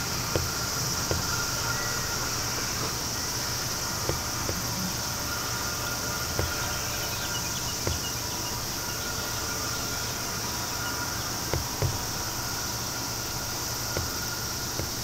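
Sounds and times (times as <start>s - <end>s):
insects buzzing and shrilling: 0.0s - 15.0s
low steady rumble: 0.0s - 15.0s.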